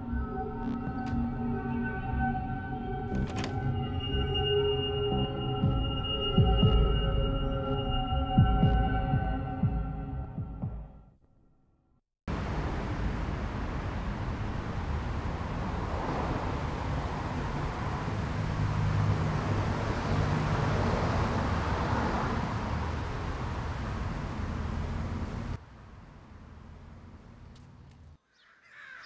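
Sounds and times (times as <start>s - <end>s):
quiet street background: 0.0s - 29.0s
road traffic rumble and hiss: 12.3s - 28.2s.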